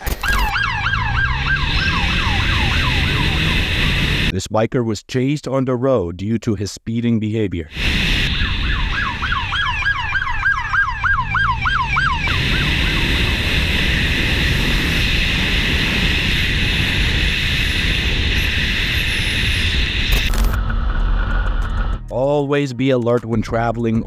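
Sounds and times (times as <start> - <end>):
siren yelping: 0.0 - 4.3, 7.7 - 20.0
wind and traffic rushing: 0.0 - 4.3, 7.7 - 22.1.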